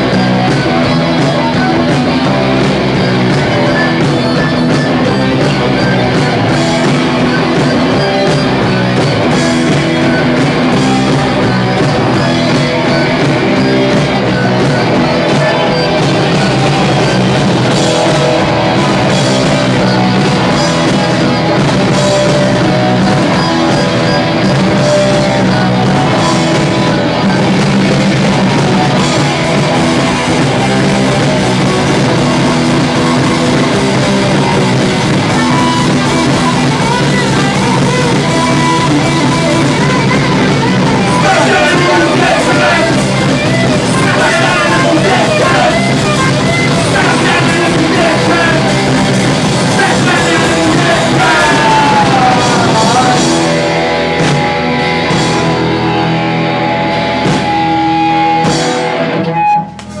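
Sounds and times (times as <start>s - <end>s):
drum kit: 0.0s - 60.0s
electric guitars: 0.0s - 60.0s
men singing and shouting: 38.6s - 54.0s.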